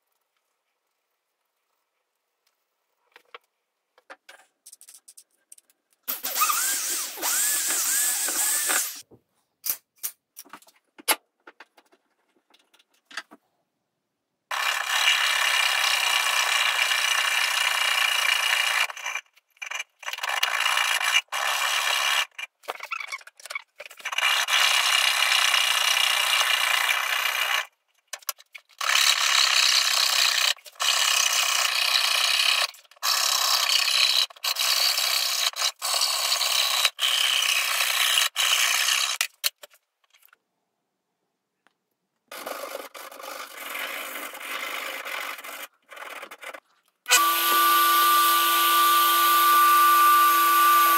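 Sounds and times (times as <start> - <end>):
cordless drill: 6.1 - 9.0, 14.5 - 19.2, 47.1 - 50.9
fretsaw rasping through wood: 6.2 - 9.0, 43.0 - 50.9.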